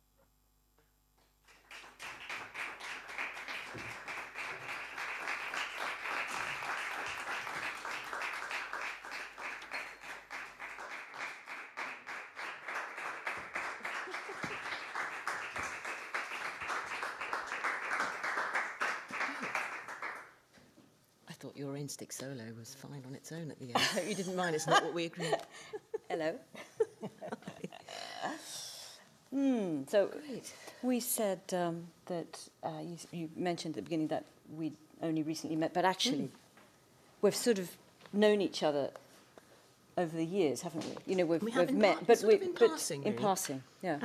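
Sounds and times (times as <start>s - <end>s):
audience applauding: 1.5s - 20.4s.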